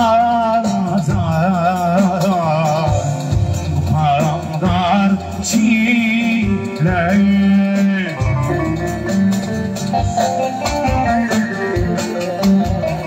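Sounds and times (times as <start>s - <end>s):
electronic keyboard: 0.0s - 13.0s
man singing into microphone: 0.0s - 13.0s.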